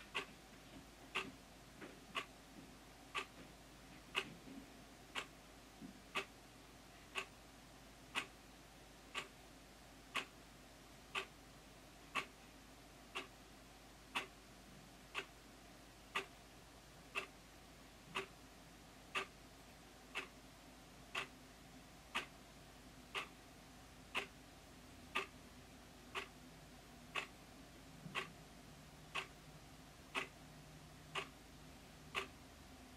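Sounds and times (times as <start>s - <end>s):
wall clock ticking: 0.0s - 0.4s, 1.1s - 2.3s, 3.1s - 3.4s, 4.0s - 4.5s, 5.1s - 5.4s, 6.1s - 6.4s, 7.1s - 7.4s, 8.1s - 8.4s, 9.1s - 9.4s, 10.1s - 10.4s, 11.1s - 11.4s, 12.1s - 12.4s, 13.0s - 13.4s, 14.1s - 14.5s, 15.1s - 15.4s, 16.0s - 16.4s, 17.1s - 17.4s, 18.1s - 18.4s, 19.1s - 19.4s, 20.1s - 20.4s, 21.1s - 21.4s, 22.0s - 22.4s, 23.1s - 23.4s, 24.1s - 24.4s, 25.1s - 25.4s, 26.1s - 26.4s, 27.1s - 28.4s, 29.1s - 29.4s, 30.1s - 30.4s, 31.1s - 31.5s, 32.1s - 32.4s.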